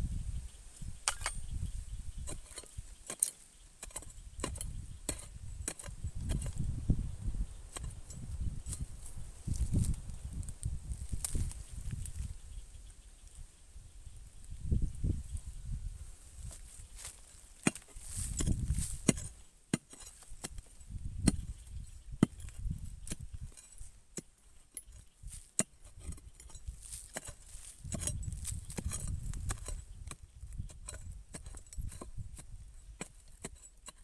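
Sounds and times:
blade chopping into dry soil: 1.0 - 1.4, 2.2 - 6.7, 7.6 - 12.2, 16.4 - 34.0.

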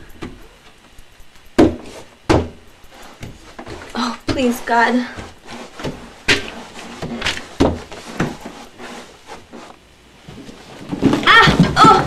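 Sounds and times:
footsteps thumping down stairs: 1.6 - 8.5.

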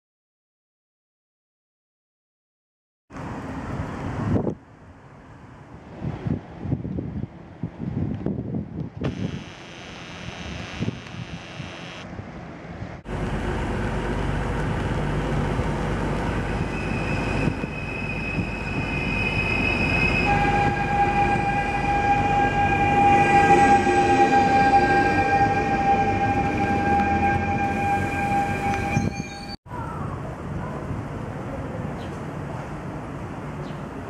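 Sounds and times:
high electric whine: 9.0 - 12.1
low electric whine: 9.0 - 12.1
wheels rumbling on rail: 10.8 - 34.0.

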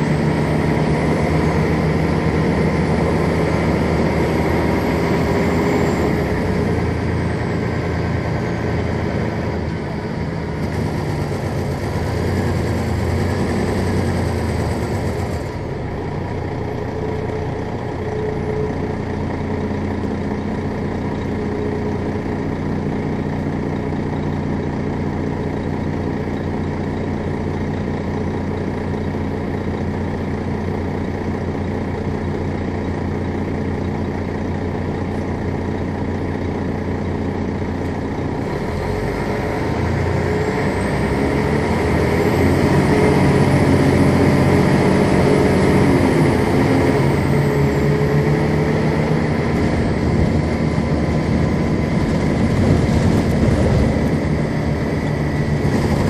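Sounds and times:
diesel engine idling: 0.0 - 56.0
rushing noise: 46.8 - 56.0.

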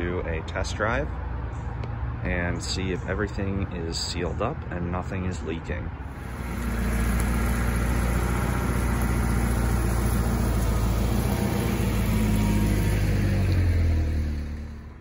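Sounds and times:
car engine driving past: 6.1 - 15.0.

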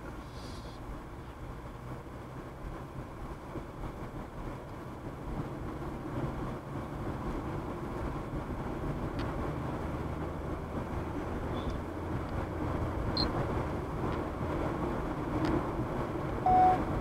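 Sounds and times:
car road and engine noise: 0.0 - 17.0.

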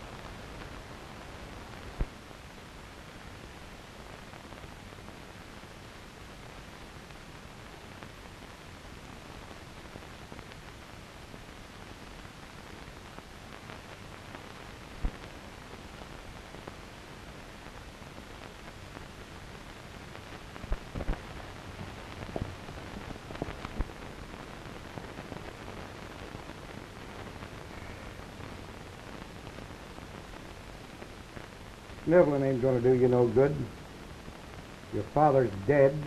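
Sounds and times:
film soundtrack hiss: 0.0 - 36.0
clicks and pops: 22.2 - 24.0.

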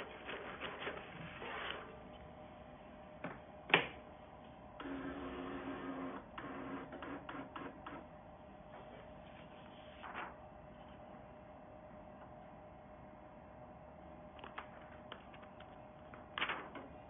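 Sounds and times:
printer motor whirring: 4.7 - 8.1.

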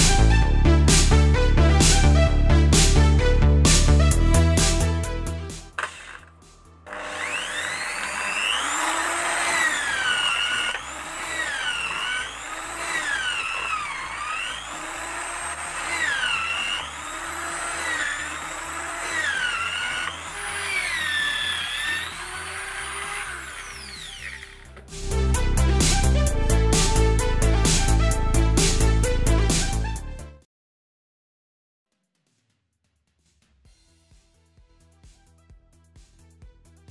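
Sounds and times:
electric drill boring wood: 5.7 - 25.0.

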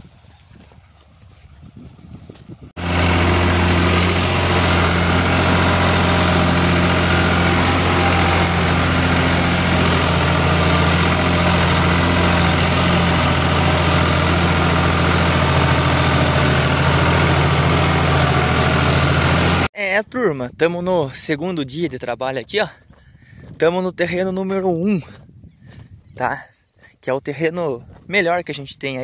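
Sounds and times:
tractor engine running: 0.9 - 19.7.

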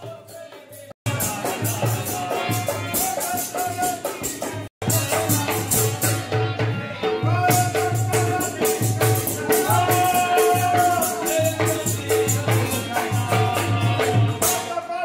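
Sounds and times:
rattling percussion: 0.0 - 14.8
harmonium: 0.1 - 14.8.

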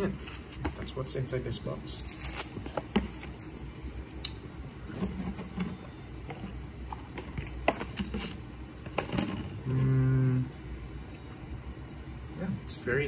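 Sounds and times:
faint low hum: 0.0 - 13.0
packaging rustling: 2.0 - 4.0.

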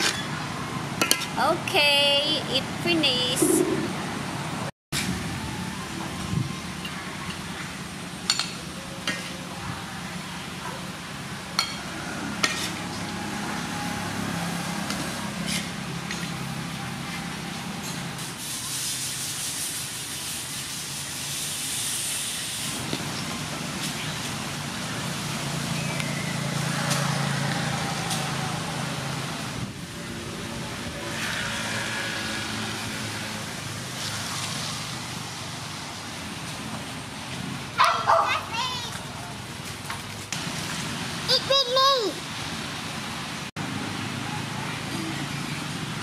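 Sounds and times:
metal spatula scraping wok: 12.2 - 13.0
sizzling hiss: 18.1 - 23.2.

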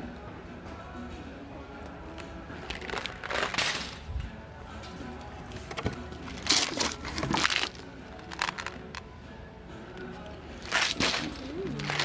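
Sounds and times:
faint background music: 0.0 - 12.0
plastic jars knocking and rattling: 5.6 - 9.0, 10.6 - 12.0.

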